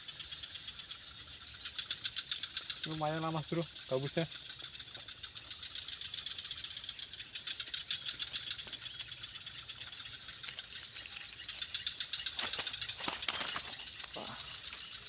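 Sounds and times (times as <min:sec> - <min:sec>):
insect chorus buzzing: 0:00.0 - 0:15.0
rustling and clicks: 0:09.8 - 0:14.8.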